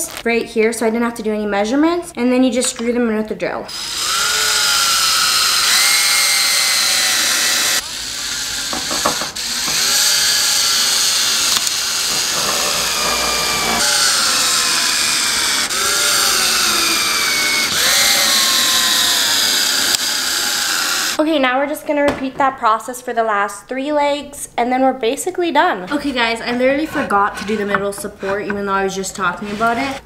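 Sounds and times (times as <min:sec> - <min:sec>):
cordless drill whining: 0:03.7 - 0:21.2.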